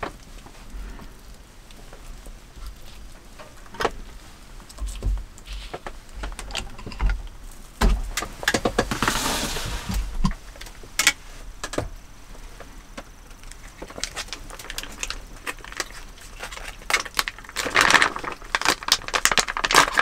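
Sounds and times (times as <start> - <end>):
plastic bag crinkling: 13.3 - 20.0.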